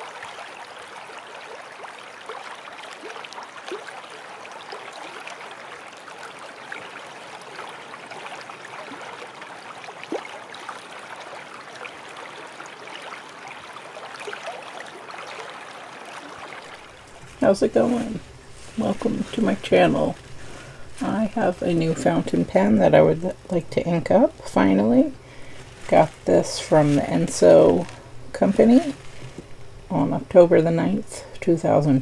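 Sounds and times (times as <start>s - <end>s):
stream rushing over rocks: 0.0s - 18.4s
water gurgling: 0.0s - 32.0s.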